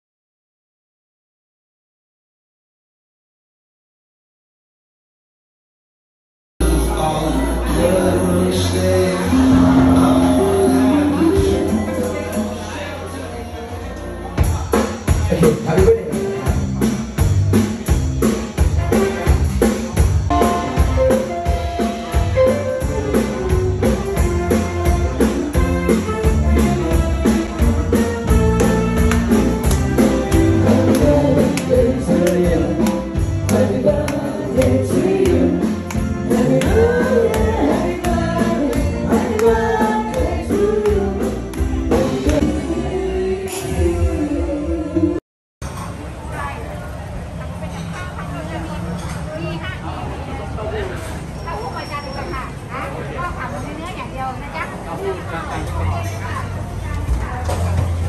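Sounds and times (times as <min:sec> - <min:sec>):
person singing: 0:06.6 - 0:12.8, 0:30.5 - 0:45.2
band music: 0:06.6 - 0:45.2.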